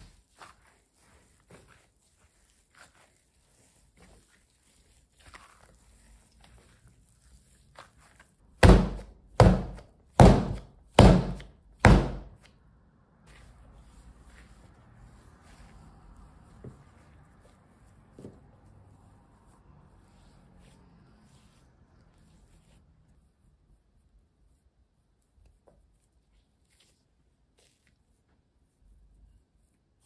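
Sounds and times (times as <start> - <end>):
dough squishing: 0.0 - 30.0
dough slammed on work surface: 8.6 - 12.5.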